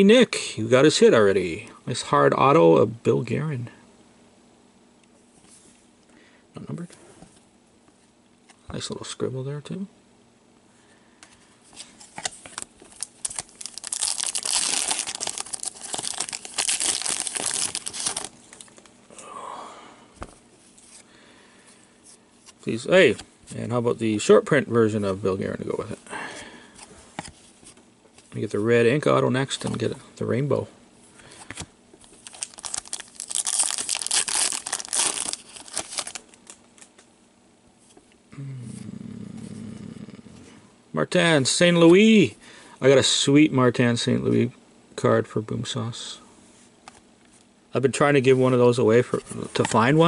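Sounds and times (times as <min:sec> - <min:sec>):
foil wrapper crinkling: 0:12.1 - 0:18.9, 0:31.5 - 0:37.0
foil wrapper tearing: 0:12.6 - 0:18.8, 0:32.0 - 0:36.9.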